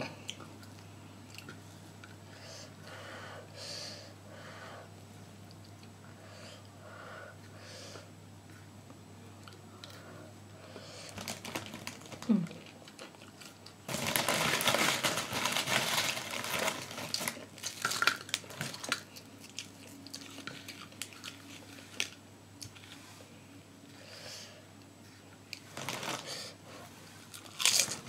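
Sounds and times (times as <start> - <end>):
crunching and chewing food: 0.2 - 2.2, 11.1 - 23.1, 25.4 - 28.0
food packaging crinkling: 11.2 - 23.0, 25.6 - 26.3, 27.2 - 28.0.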